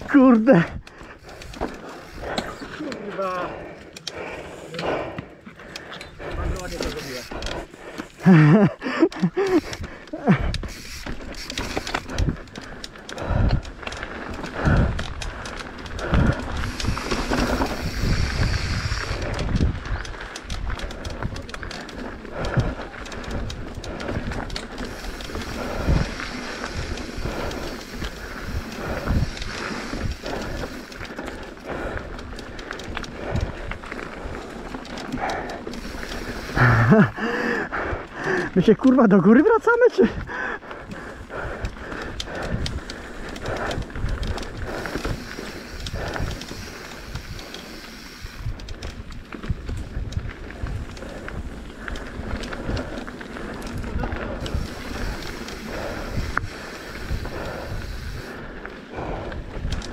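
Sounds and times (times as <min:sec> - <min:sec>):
bike rattling and clicking: 0:00.0 - 0:59.9
bike tyres rumbling over dirt: 0:00.0 - 0:59.9
wind on microphone: 0:14.4 - 0:31.0, 0:40.2 - 0:59.9.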